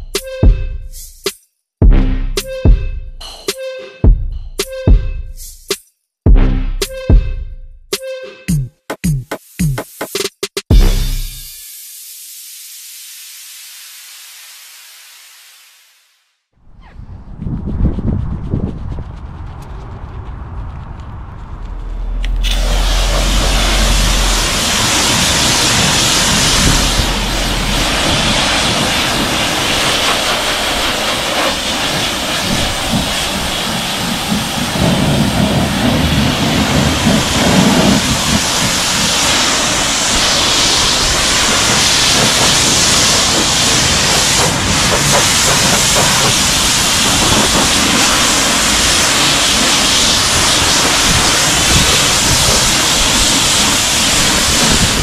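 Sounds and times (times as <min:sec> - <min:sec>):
pressure washer spraying water: 0:22.2 - 0:55.0.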